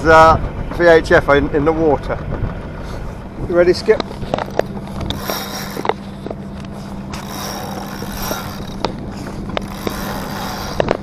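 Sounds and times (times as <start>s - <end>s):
boat engine hum: 0.0s - 11.0s
rush of wind and water: 0.0s - 11.0s
sharp clicks and knocks: 3.9s - 11.0s.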